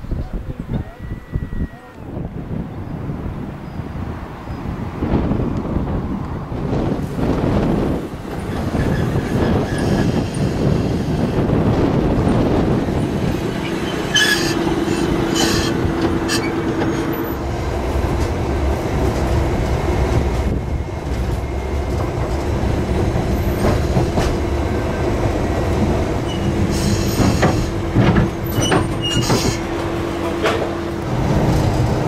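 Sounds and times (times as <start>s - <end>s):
tram rumbling along track: 0.0s - 32.0s
wheels squealing on rails: 8.3s - 11.2s, 13.2s - 17.4s, 25.9s - 31.9s.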